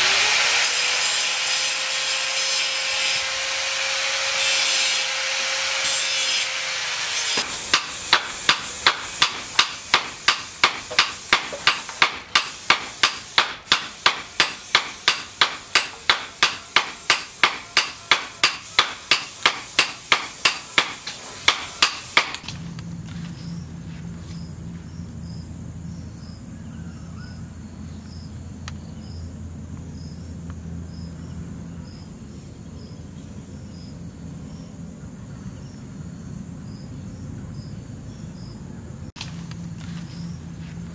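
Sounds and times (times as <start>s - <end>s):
rapid knocking strokes: 7.3s - 22.4s
insects chirping: 7.4s - 40.9s.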